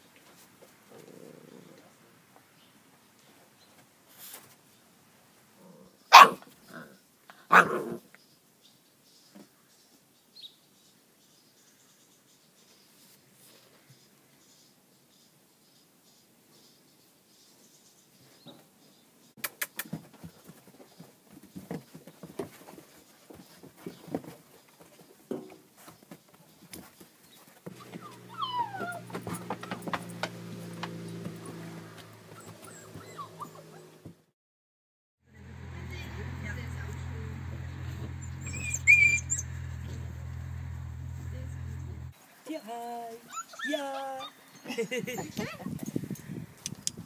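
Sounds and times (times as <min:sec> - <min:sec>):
puppy barking: 0:06.1 - 0:06.5, 0:07.5 - 0:08.0, 0:27.8 - 0:30.0, 0:38.1 - 0:40.1
puppy paws on wooden boards: 0:19.6 - 0:34.2, 0:36.2 - 0:42.1
puppy whimpering: 0:27.7 - 0:30.0, 0:32.3 - 0:34.1, 0:38.1 - 0:40.0, 0:43.3 - 0:44.7.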